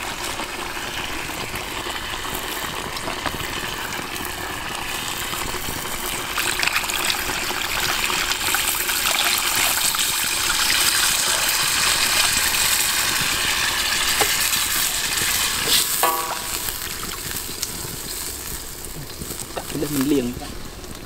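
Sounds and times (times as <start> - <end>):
sizzling in a hot wok: 0.0 - 21.0
liquid pouring and splashing: 1.3 - 19.4.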